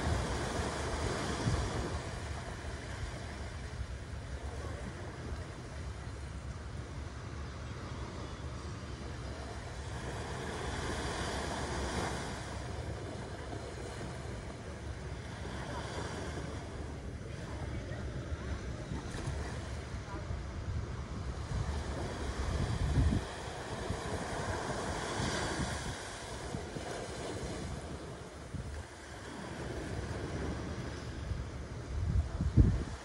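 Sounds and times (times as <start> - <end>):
wind buffeting microphone: 0.0 - 5.8, 17.2 - 33.0
small sea waves breaking: 0.0 - 33.0.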